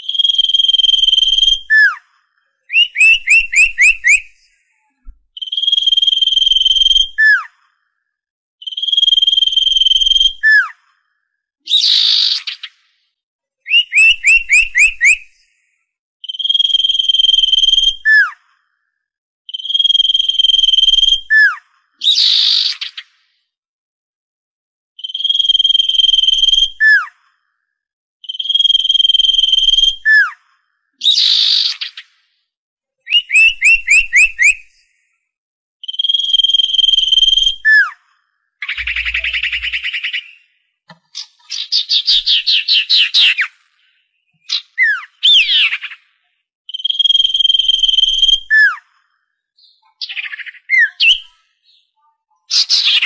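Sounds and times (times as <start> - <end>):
bird whistling and trilling: 0.0 - 2.0, 2.7 - 7.5, 8.6 - 10.8, 11.7 - 12.7, 13.7 - 15.5, 16.2 - 18.4, 19.5 - 23.0, 25.0 - 27.2, 28.2 - 30.4, 31.0 - 32.0, 33.0 - 35.0, 35.8 - 38.0, 38.6 - 48.9, 49.6 - 53.0
bird chattering: 38.6 - 40.4.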